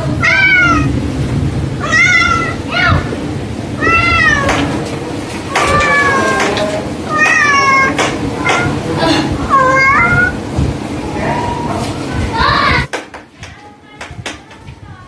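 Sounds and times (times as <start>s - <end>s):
cat meowing: 0.2s - 1.0s, 1.8s - 3.1s, 3.8s - 4.7s, 5.5s - 8.8s, 9.4s - 10.4s.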